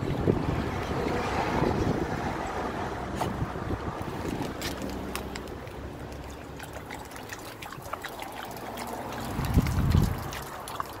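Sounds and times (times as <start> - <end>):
dog lapping water: 2.5 - 11.0
water trickling from tap: 3.8 - 11.0.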